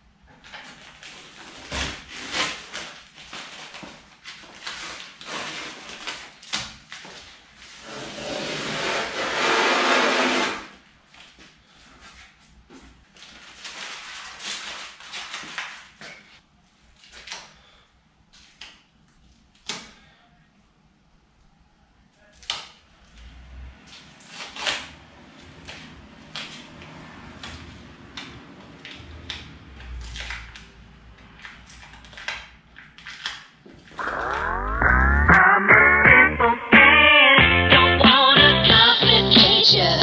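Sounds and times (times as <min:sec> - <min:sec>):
tape peeling off metal: 0:00.9 - 0:10.7.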